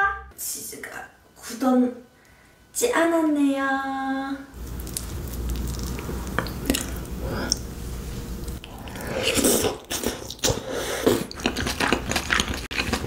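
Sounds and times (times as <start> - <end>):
wet mouth sounds: 4.6 - 7.7, 8.4 - 13.0
biting and chewing: 8.5 - 13.0.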